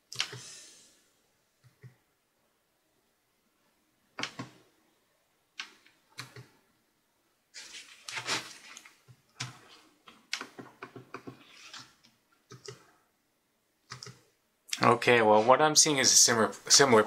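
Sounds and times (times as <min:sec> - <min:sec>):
laptop buttons and keys clicking: 0:00.0 - 0:00.5, 0:04.2 - 0:04.6, 0:05.6 - 0:06.6, 0:09.0 - 0:12.9, 0:13.8 - 0:14.3.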